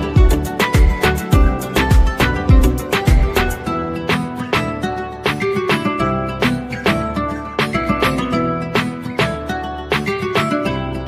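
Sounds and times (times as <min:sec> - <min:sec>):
low drum thumps: 0:00.2 - 0:03.4.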